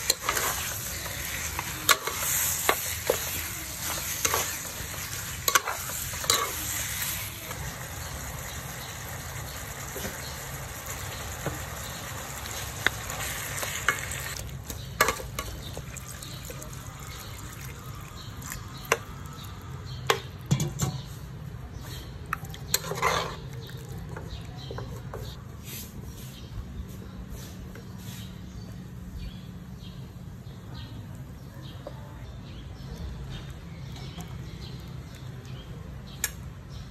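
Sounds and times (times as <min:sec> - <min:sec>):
spatula knocking and scraping pan: 0:00.0 - 0:06.6
meat sizzling in a wok: 0:00.0 - 0:14.4.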